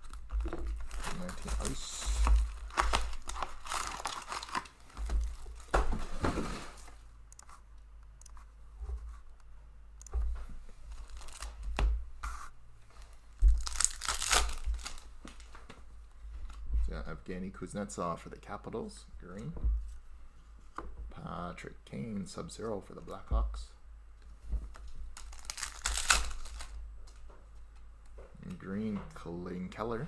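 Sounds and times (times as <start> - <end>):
foil packs tearing: 0.0 - 5.7, 13.6 - 15.1, 25.2 - 26.8
shrink wrap crinkling and tearing: 0.0 - 5.8, 10.9 - 11.6, 13.0 - 15.5, 24.7 - 27.2.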